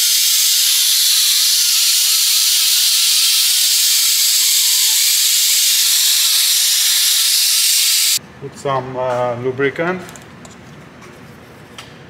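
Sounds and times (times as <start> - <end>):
air ratchet hissing: 0.0 - 8.2.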